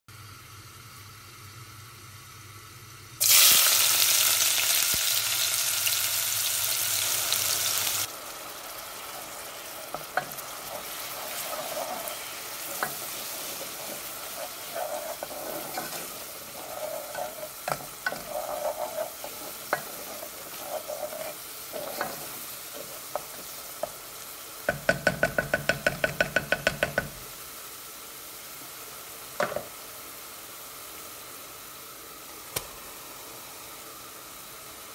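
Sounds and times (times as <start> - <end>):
food sizzling in a pot: 0.1 - 34.9
spoon scraping a pot: 9.9 - 23.9.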